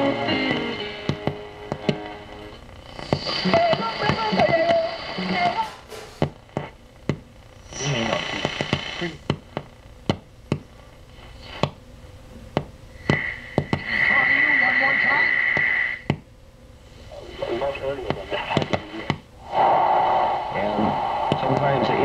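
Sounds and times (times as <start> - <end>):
radio broadcast voice and music: 0.0 - 5.8, 7.6 - 9.2, 13.2 - 16.0, 17.0 - 22.0
static crackles: 0.0 - 11.8, 13.0 - 16.1, 16.8 - 22.0
steady high whistle: 19.4 - 22.0.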